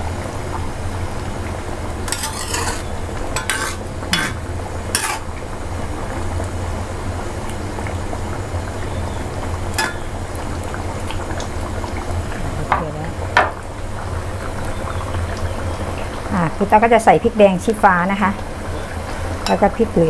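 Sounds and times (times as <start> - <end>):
curry bubbling in pot: 0.0 - 20.0
ladle knocking against pot: 3.4 - 5.2, 9.8 - 10.1.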